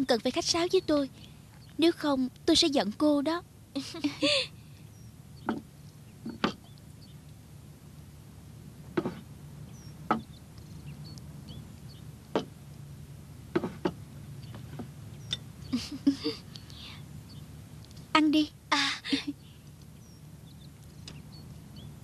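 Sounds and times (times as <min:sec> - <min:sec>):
low steady hum: 0:00.0 - 0:22.0
dishes knocking on a table: 0:13.6 - 0:14.0.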